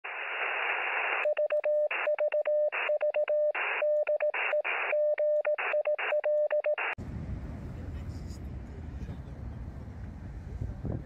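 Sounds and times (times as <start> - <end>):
radio static hiss: 0.1 - 1.2
morse code beeps: 1.2 - 7.0.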